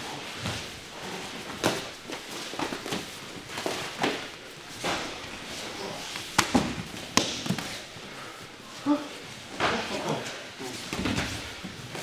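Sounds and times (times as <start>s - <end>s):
gloves and shin guards thudding: 6.2s - 7.8s.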